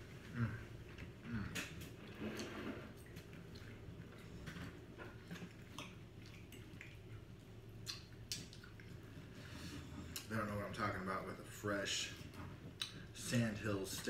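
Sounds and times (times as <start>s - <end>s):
chewing: 0.2s - 10.3s.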